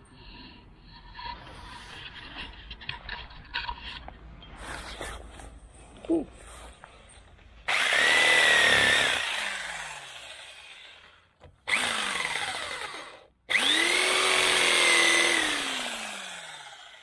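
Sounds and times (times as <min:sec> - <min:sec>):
electric jigsaw cutting wood: 0:07.7 - 0:17.0.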